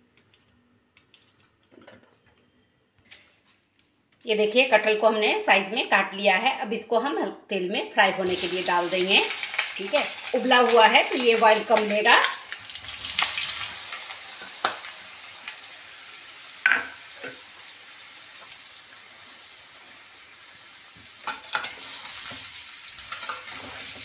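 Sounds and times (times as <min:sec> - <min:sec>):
food sizzling in hot oil: 0:08.1 - 0:24.0
metal spatula stirring: 0:23.0 - 0:24.0.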